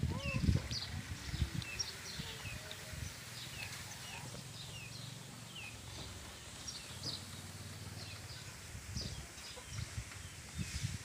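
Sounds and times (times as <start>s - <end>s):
birds chirping: 0.0s - 10.7s.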